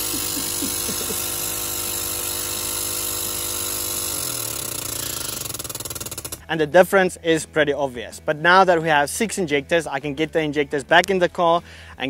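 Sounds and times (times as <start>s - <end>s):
test bench mechanical hum: 0.0s - 6.5s.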